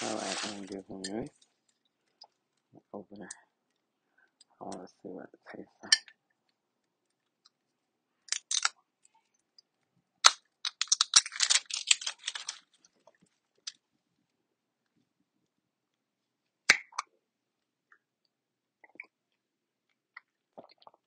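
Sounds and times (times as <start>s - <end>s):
objects clicking and rattling: 10.2s - 13.8s.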